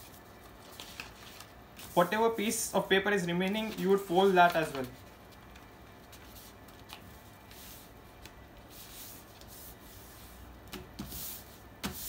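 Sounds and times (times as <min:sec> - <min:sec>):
paper being folded and creased: 0:00.0 - 0:02.2, 0:03.4 - 0:10.3
paper swishes: 0:03.4 - 0:12.0.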